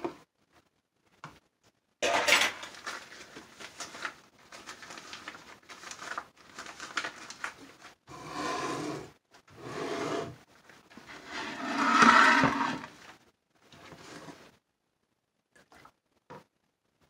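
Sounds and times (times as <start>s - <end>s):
rubbing and scraping of plastic: 2.6s - 14.6s
bowl sliding across counter: 8.1s - 10.4s, 11.0s - 13.1s, 13.8s - 14.5s.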